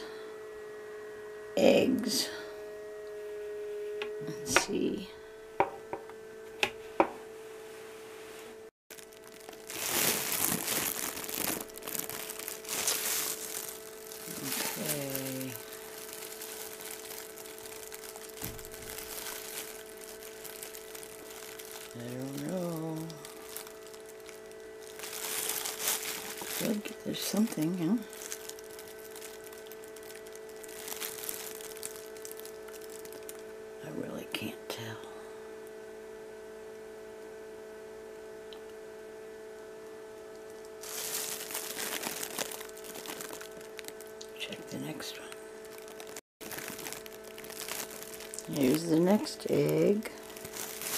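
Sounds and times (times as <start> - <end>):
steady electrical hum: 0.0 - 50.9
plastic glove crinkling: 8.9 - 33.8, 40.2 - 50.9.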